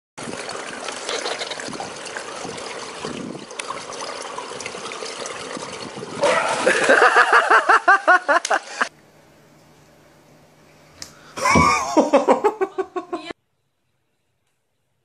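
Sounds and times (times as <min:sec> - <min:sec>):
pool water lapping and trickling: 0:00.2 - 0:09.0
loud water splash: 0:05.5 - 0:07.6
person laughing: 0:06.2 - 0:08.9, 0:11.4 - 0:13.4.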